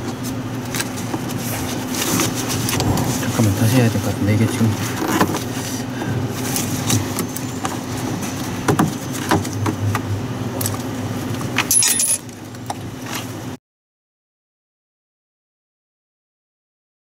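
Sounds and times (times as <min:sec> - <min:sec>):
steady low hum: 0:00.0 - 0:13.6.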